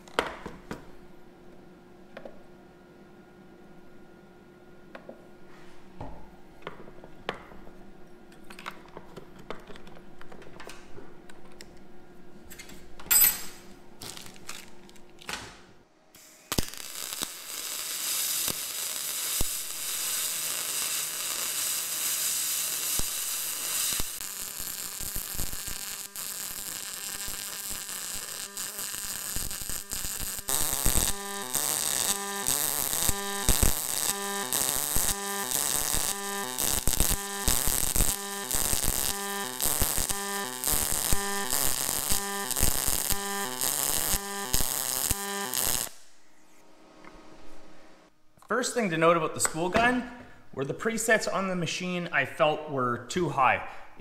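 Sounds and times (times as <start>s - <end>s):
welding arc crackle and hiss: 14.0s - 15.0s, 16.1s - 46.1s.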